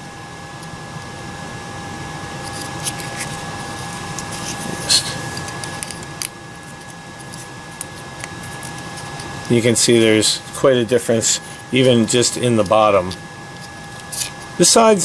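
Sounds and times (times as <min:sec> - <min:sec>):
background hum: 0:00.0 - 0:15.0
faint high whine: 0:00.0 - 0:15.0
scratchy rustle: 0:02.4 - 0:06.0, 0:13.6 - 0:14.5.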